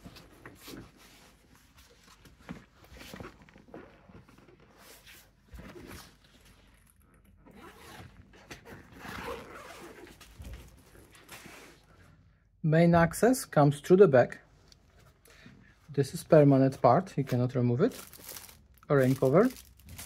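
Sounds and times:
fabric backpack rustling: 0.0s - 11.9s, 17.9s - 20.0s
zipper pull: 4.7s - 11.7s.

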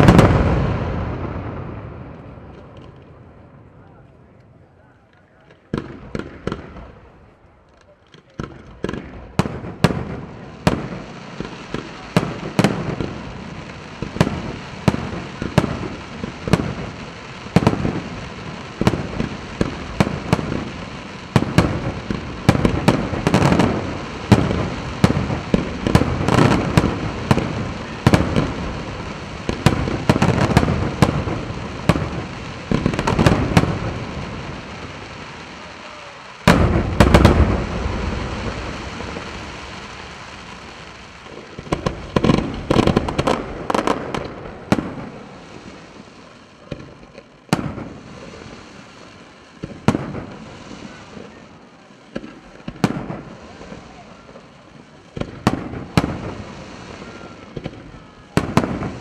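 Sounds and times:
fireworks bursting with echoing bangs: 0.0s - 3.9s, 5.4s - 59.0s.

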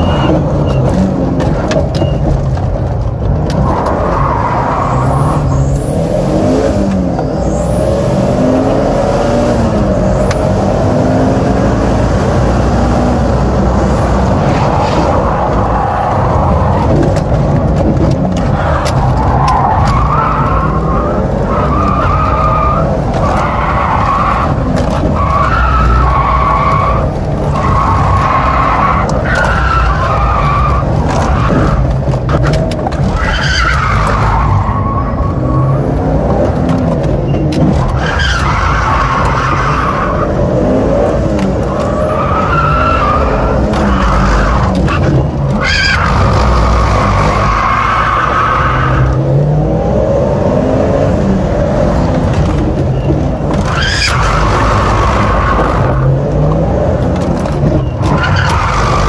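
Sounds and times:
car engine revving hard: 4.9s - 17.2s
tyres squealing: 41.5s - 49.3s, 52.6s - 56.6s, 57.2s - 59.0s.

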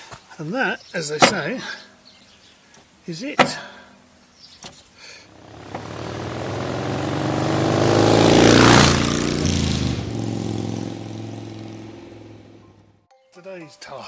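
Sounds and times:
vehicle engine passing: 5.3s - 13.0s.

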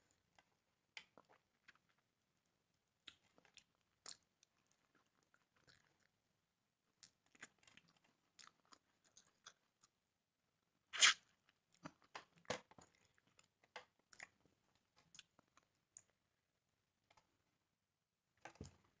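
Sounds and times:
loud bite: 11.0s - 11.2s.

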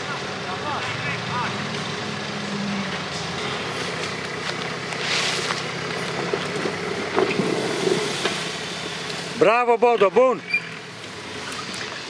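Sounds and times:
off-road vehicle engine under load: 0.0s - 12.0s.

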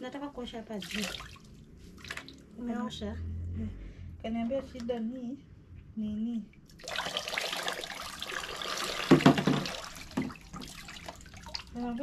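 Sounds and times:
water pouring over hair: 0.8s - 2.5s, 6.7s - 12.0s
water splashing into basin: 0.8s - 2.6s, 6.6s - 12.0s.

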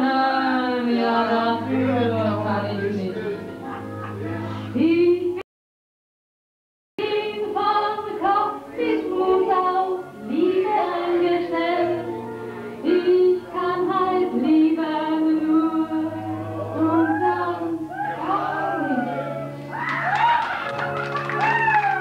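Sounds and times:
musical accompaniment: 0.0s - 5.4s, 7.0s - 22.0s.

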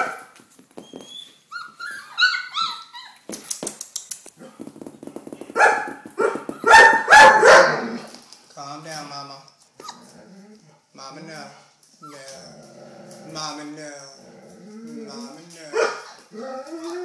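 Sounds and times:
puppies whining and squealing: 0.8s - 3.4s, 9.8s - 10.2s, 12.0s - 12.5s
puppies yelping barks: 1.5s - 3.4s, 5.6s - 8.0s.

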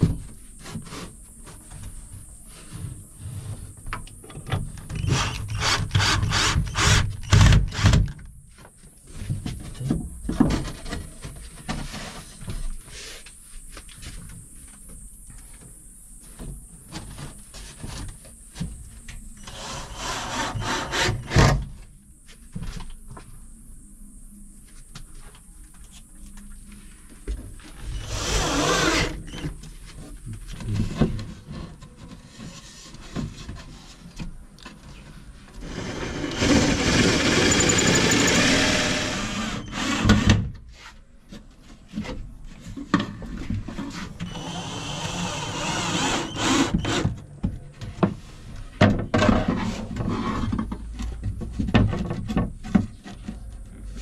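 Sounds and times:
cordless drill driving screws: 5.0s - 8.0s, 35.6s - 40.2s, 44.3s - 47.0s.

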